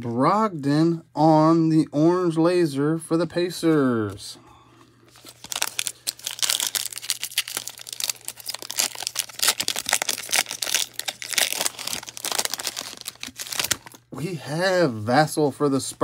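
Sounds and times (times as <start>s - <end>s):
foil wrapper crinkling: 5.1s - 14.1s.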